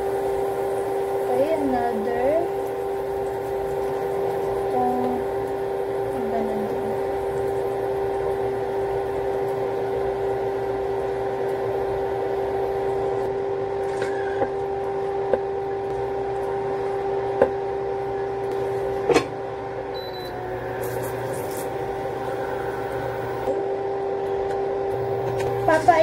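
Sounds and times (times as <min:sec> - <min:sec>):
induction cooktop electric hum: 0:00.0 - 0:26.0.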